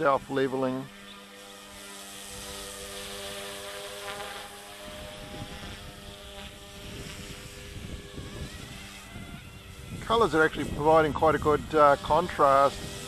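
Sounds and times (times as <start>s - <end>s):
rc helicopter motor whine: 0.0s - 13.0s
wind buffeting microphone: 4.8s - 13.0s.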